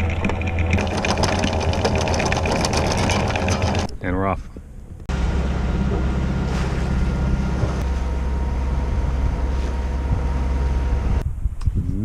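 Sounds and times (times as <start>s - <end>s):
boat engine running: 0.0s - 11.2s
wind rushing: 8.7s - 12.0s.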